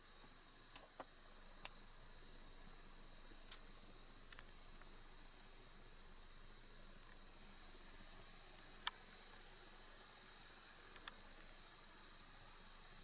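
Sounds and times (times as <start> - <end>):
insect chirps: 0.0 - 13.0
insect chorus trilling: 0.0 - 13.0
faint clicks: 3.4 - 3.7, 8.8 - 9.1, 10.9 - 11.2.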